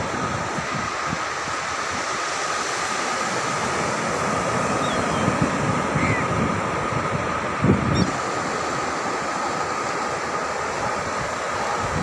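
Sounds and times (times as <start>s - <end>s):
ocean surf washing: 0.0s - 12.0s
wind buffeting microphone: 4.7s - 8.6s, 10.8s - 12.0s.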